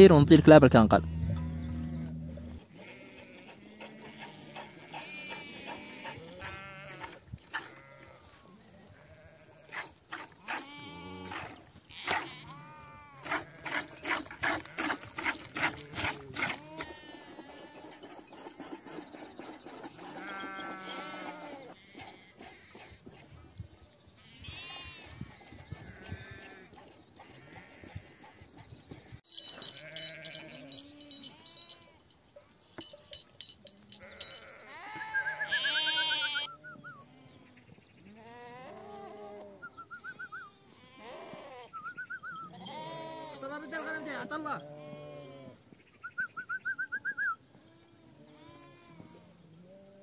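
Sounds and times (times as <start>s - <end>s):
sheep bleating: 1.0s - 8.3s, 10.6s - 11.3s, 11.9s - 14.0s, 16.6s - 18.0s, 20.2s - 22.3s, 33.8s - 37.4s, 40.5s - 41.8s, 42.4s - 45.6s, 47.6s - 50.0s
sharp clinks: 29.2s - 34.8s.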